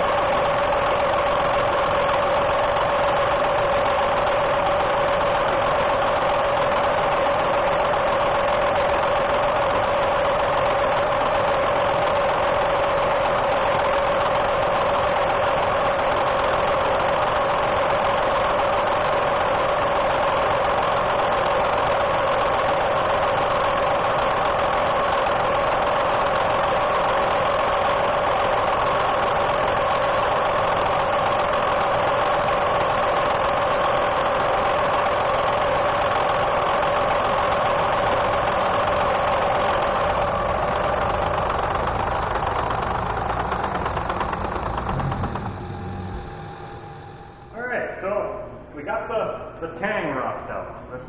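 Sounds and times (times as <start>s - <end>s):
motor and cutter whine: 42.6s - 47.6s.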